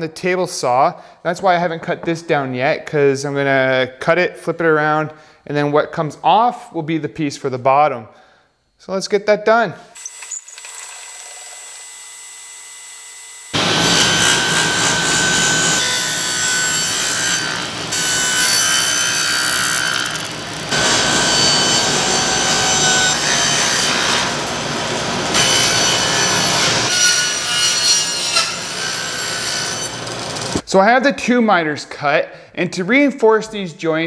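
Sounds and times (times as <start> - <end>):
table saw cutting wood: 10.0 - 30.6.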